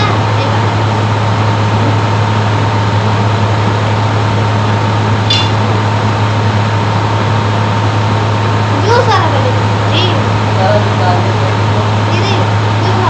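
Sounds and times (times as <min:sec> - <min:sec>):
steady loud hum: 0:00.0 - 0:13.0.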